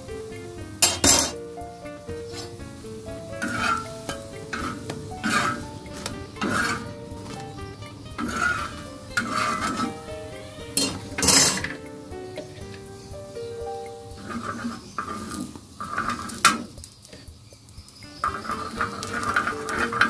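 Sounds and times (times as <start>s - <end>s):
background music: 0.0s - 20.0s
steel spatula scraping griddle: 0.8s - 1.4s, 3.3s - 7.5s, 8.2s - 10.1s, 10.8s - 11.8s, 14.2s - 17.3s, 18.2s - 20.0s.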